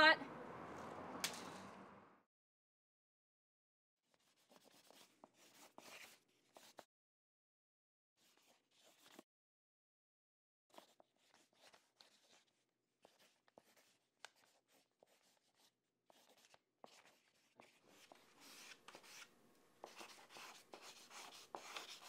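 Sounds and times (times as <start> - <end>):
pencil scratching on paper: 4.2 - 6.8, 8.2 - 9.2, 10.7 - 22.0.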